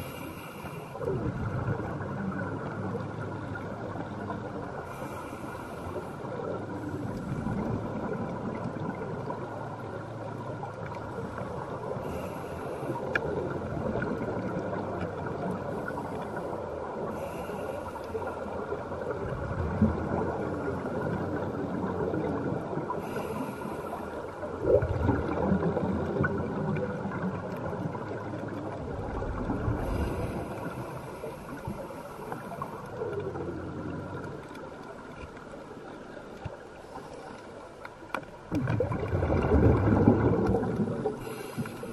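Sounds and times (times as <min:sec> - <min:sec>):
diver breathing through regulator: 0:00.0 - 0:01.0, 0:04.8 - 0:06.3, 0:12.0 - 0:13.2, 0:15.8 - 0:18.5, 0:23.0 - 0:24.2, 0:29.8 - 0:33.0, 0:41.0 - 0:41.9
steady underwater wash: 0:00.0 - 0:41.9
exhaled bubbles rumbling: 0:01.0 - 0:05.1, 0:06.0 - 0:37.2, 0:38.0 - 0:41.9.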